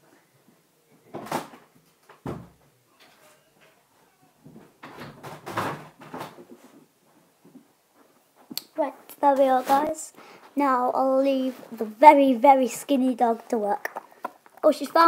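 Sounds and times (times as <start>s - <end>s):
knocks and rustles: 4.4s - 8.6s.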